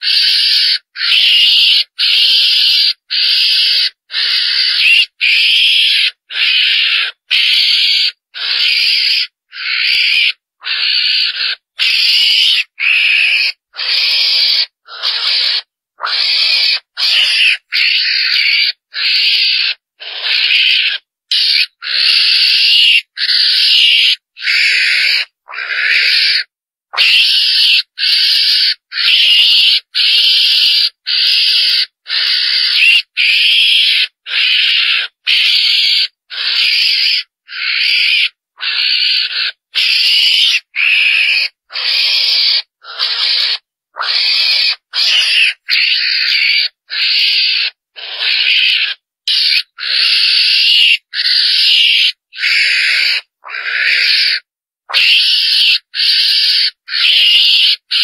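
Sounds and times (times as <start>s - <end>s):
raspy hissing animal calls: 0.0s - 58.0s.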